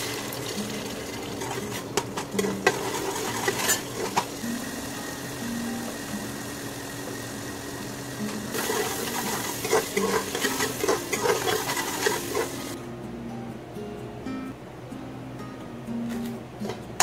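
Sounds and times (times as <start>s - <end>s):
masala sizzling in a pot: 0.0s - 12.8s
metal spoon scraping a pot: 1.4s - 4.3s, 8.6s - 12.8s.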